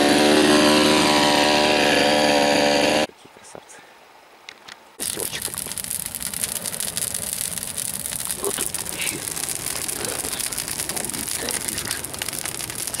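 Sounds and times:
bonfire crackling and popping: 5.0 - 13.0.

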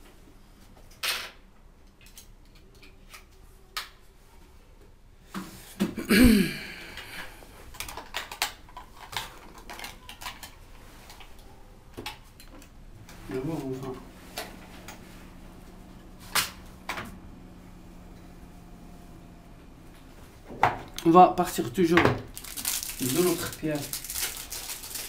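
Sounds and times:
small hard objects clinking: 21.6 - 25.0.

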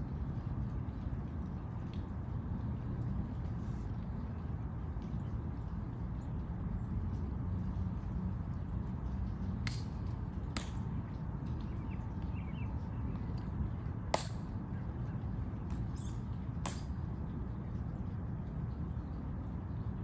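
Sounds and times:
low outdoor rumble: 0.0 - 20.0.

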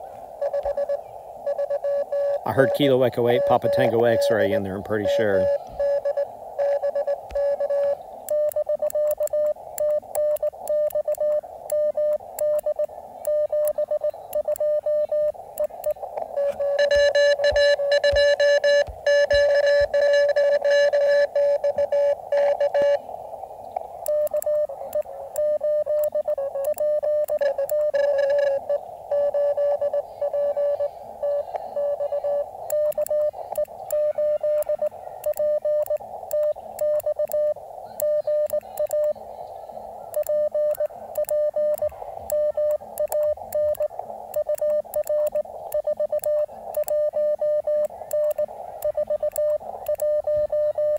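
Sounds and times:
morse code tone: 0.0 - 23.0, 24.0 - 39.3, 40.1 - 50.9
faint sharp clicks: 7.2 - 20.0, 23.6 - 28.4, 32.6 - 39.2, 40.1 - 50.9.

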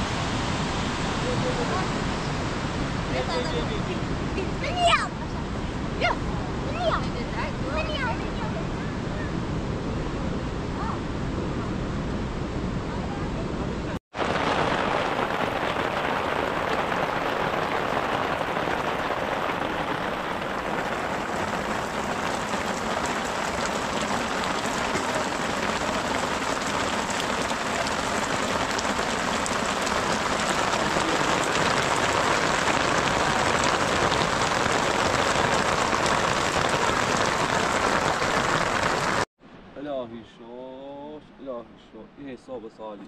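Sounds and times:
heavy rain on plastic awning: 0.0 - 5.0, 14.1 - 39.3
water streaming off sheet: 14.1 - 39.3.

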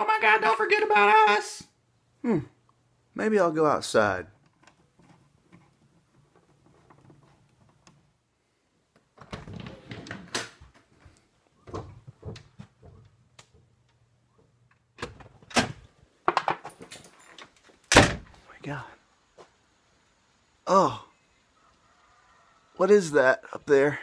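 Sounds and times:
knocks and rattles of handling: 4.4 - 8.2, 8.9 - 18.4.

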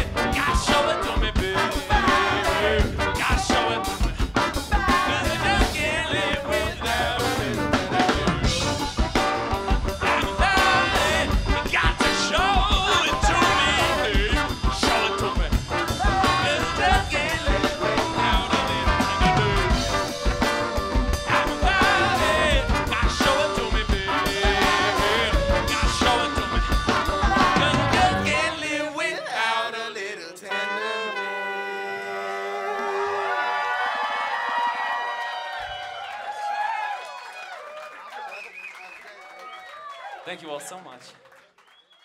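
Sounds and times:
funk band playing: 0.0 - 28.8
person shouting lead vocal: 10.1 - 20.4, 24.4 - 28.5
audience cheering: 10.1 - 23.2, 24.1 - 28.5, 31.2 - 42.0.

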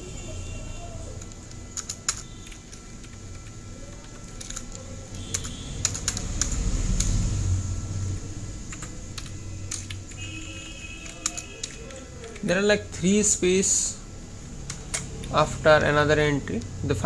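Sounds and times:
keyboard key clicks: 1.2 - 7.2, 11.0 - 12.5.

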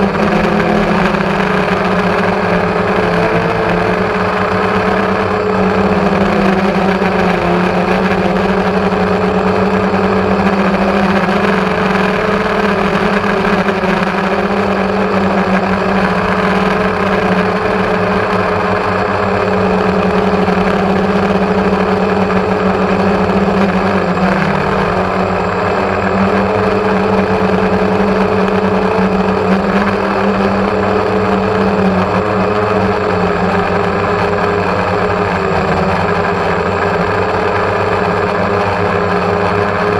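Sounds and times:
drone propellers buzzing: 0.0 - 39.9.

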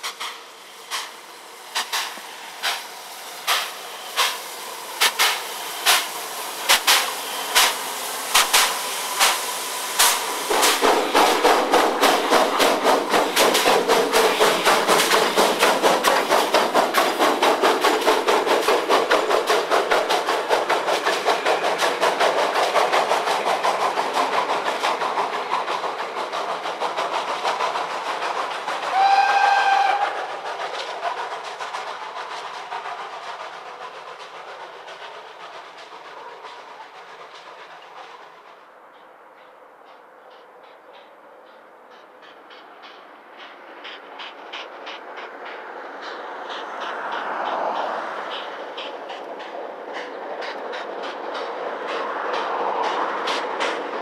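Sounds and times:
steam locomotive exhaust chuffs: 0.0 - 54.0
steam whistle: 28.9 - 30.4.

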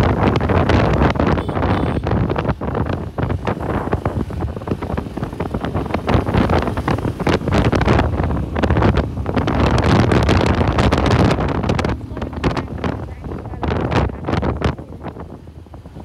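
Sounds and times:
road noise: 0.0 - 16.0
wind buffeting microphone: 0.0 - 16.0.

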